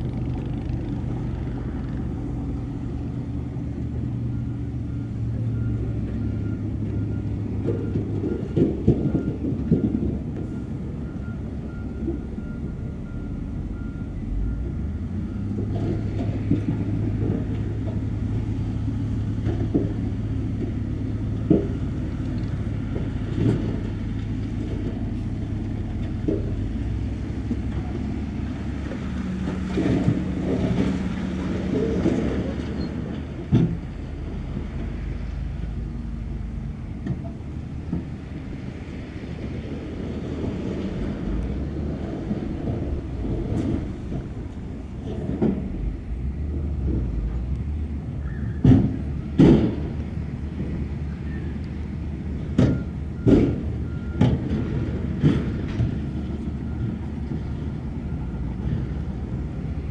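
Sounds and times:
diesel engine drone: 0.0 - 59.9.

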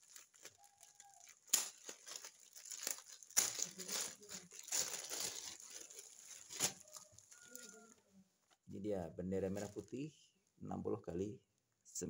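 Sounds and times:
plastic bag crinkling: 0.0 - 8.0, 9.4 - 10.0.

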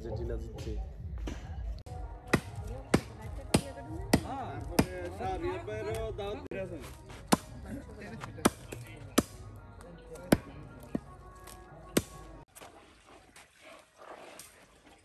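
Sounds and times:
cleaver chopping on wooden block: 2.3 - 5.0, 7.3 - 7.5.

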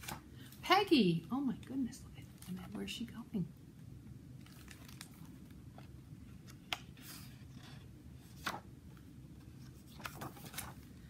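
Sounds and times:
low steady hum: 0.0 - 11.0
page turning swish: 8.4 - 8.6, 9.9 - 10.8.

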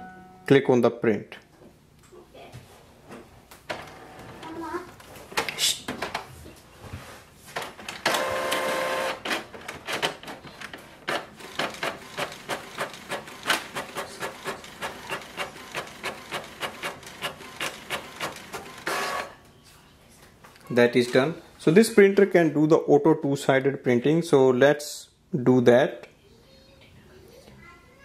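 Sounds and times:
printer whirring: 7.9 - 19.4
print head carriage strokes: 11.1 - 19.3.

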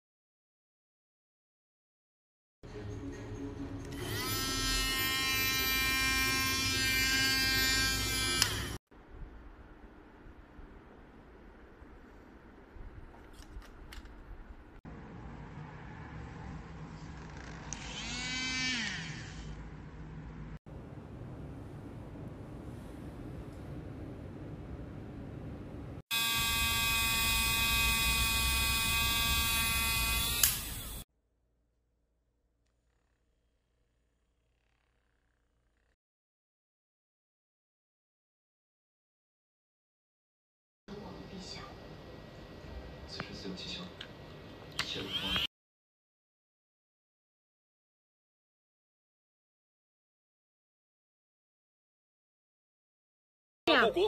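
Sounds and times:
milk frother motor buzzing: 4.0 - 8.8, 17.2 - 19.6, 26.1 - 31.0
milk frother motor whine: 26.1 - 31.0.

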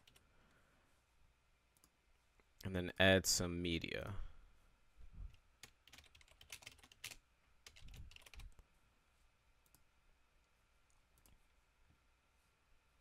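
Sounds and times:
faint keyboard typing: 0.0 - 0.3, 1.7 - 2.0, 5.3 - 8.6, 9.6 - 11.6.

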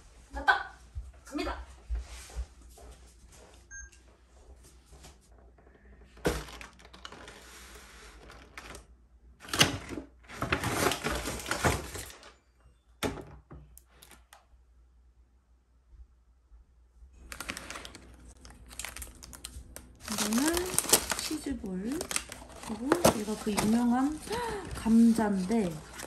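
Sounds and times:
paper bag rustling and crinkling: 6.2 - 8.9, 9.8 - 12.4, 17.2 - 26.0.

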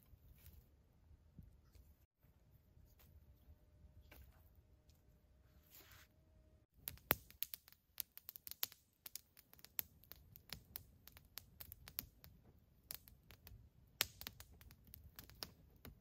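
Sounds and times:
campfire crackling and popping: 6.7 - 16.0.

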